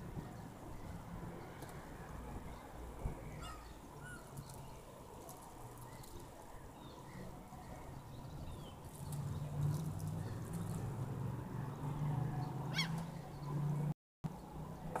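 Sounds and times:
gulls calling: 3.3s - 4.5s, 12.6s - 13.2s.

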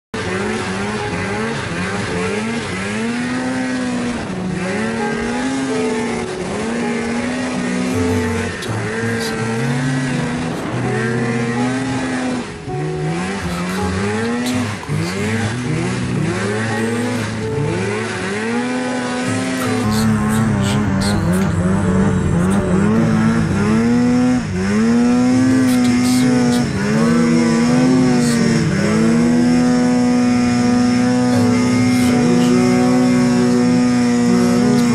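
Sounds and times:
snowmobile engine revving: 0.2s - 34.9s.

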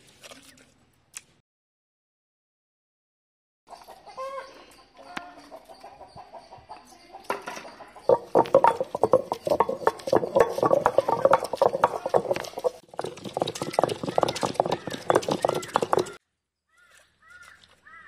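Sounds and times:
chickens clucking: 3.7s - 16.2s.

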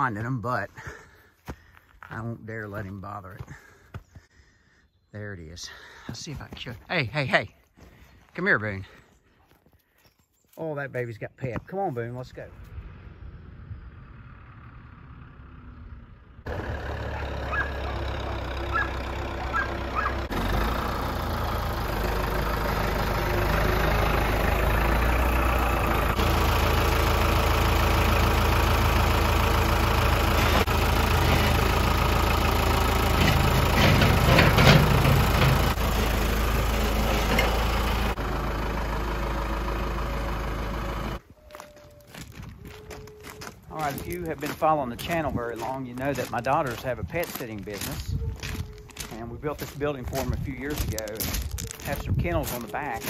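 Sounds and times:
tractor engine running: 11.5s - 53.0s.

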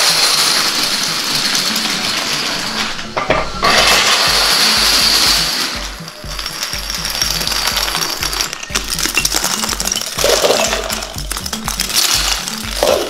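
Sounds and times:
toy dominoes toppling: 0.0s - 2.9s, 3.7s - 13.0s
music with thudding bass beat: 3.2s - 13.0s.

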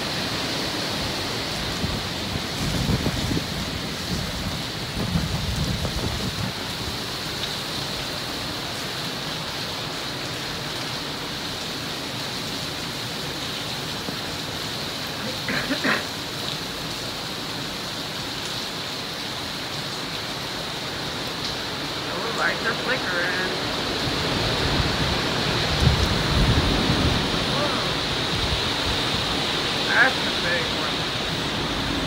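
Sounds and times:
wind through trees: 0.0s - 32.0s
wind-driven rain: 0.0s - 32.0s
wind buffeting microphone: 1.6s - 7.0s, 24.0s - 29.8s.

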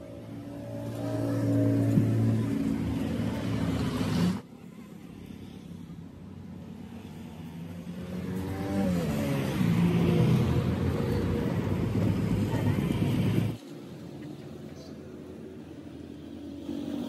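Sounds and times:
vehicle engine revving: 7.9s - 12.0s.

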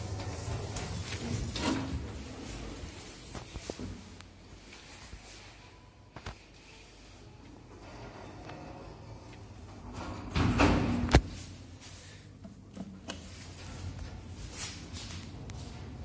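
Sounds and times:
lift doors sliding shut: 0.0s - 2.4s
lift doors banging closed: 9.8s - 11.2s.

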